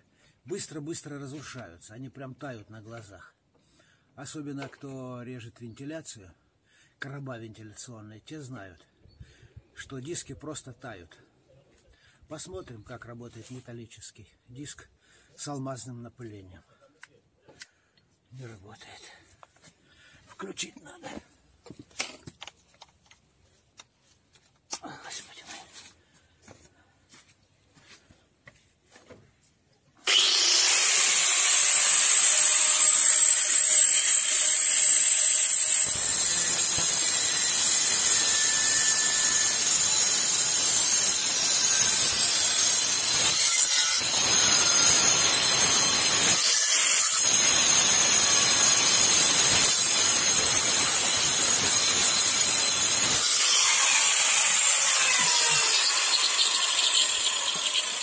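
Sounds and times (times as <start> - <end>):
angle grinder running: 30.0 - 58.0
grinder cutting sheet steel: 30.0 - 58.0.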